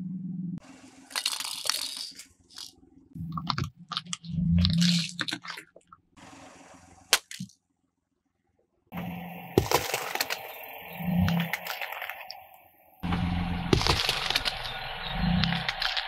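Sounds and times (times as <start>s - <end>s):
tyre crushing plastic and cans: 1.1s - 5.9s, 9.6s - 12.4s, 13.0s - 16.0s.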